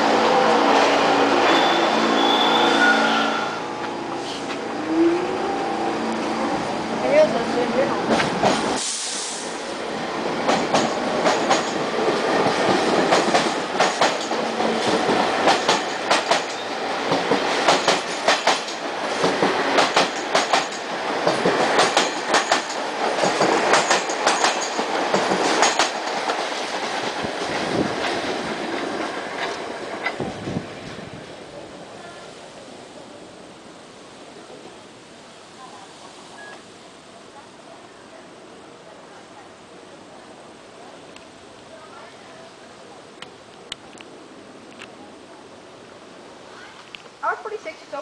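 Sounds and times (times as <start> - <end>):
subway train rumbling past: 0.0 - 48.0
wheels clacking over rail joints: 10.4 - 30.3.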